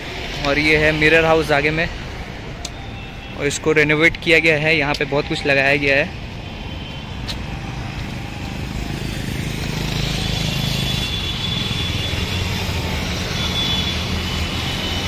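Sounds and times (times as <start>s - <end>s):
passing cars and motorbikes: 0.0s - 15.0s.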